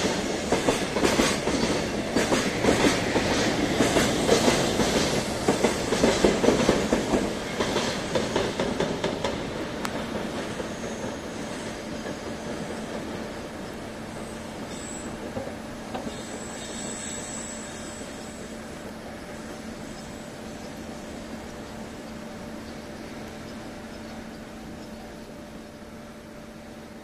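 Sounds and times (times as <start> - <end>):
train wheels clacking over rail joints: 0.0 - 17.3
high wheel squeal: 10.6 - 12.8, 14.2 - 15.3, 16.0 - 18.6.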